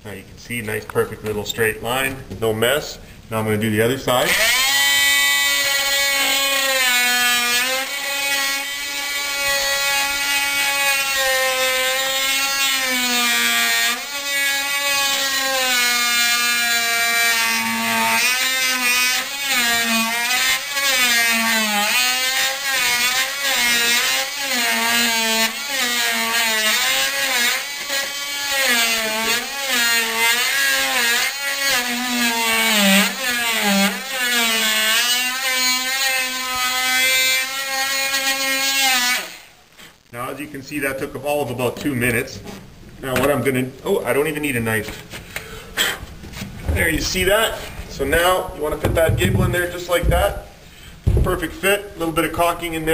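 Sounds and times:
oscillating multi-tool cutting wood: 4.2 - 39.5.

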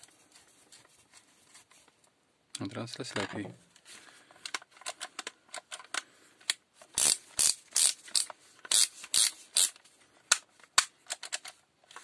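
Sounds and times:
drill ratcheting clicks: 7.0 - 9.8.

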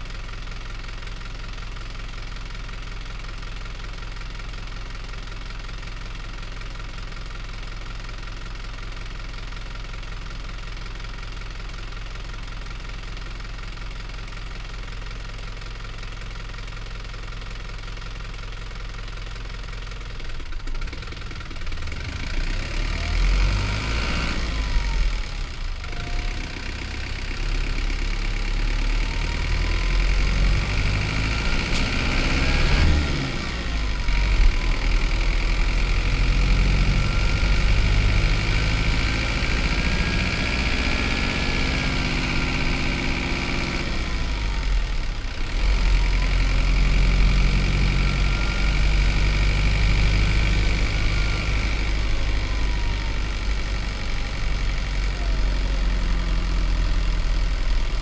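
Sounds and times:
bus diesel engine running: 17.2 - 58.0.

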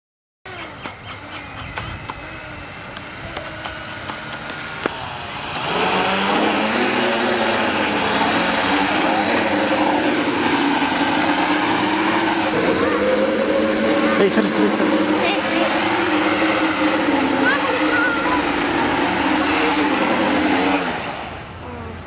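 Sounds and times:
drone motors buzzing: 0.5 - 22.0
scattered clicks: 0.6 - 5.0.

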